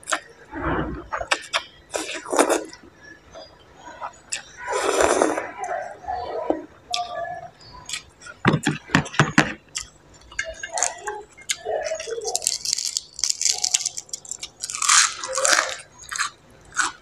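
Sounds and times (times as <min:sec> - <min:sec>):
chewing and crunching food: 0:01.1 - 0:17.0
vegetable leaf tearing: 0:12.1 - 0:17.0.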